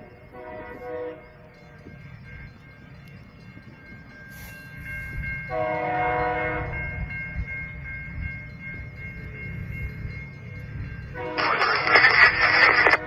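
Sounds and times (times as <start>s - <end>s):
locomotive horn chord: 0.0s - 1.5s, 5.5s - 6.9s, 11.2s - 11.7s.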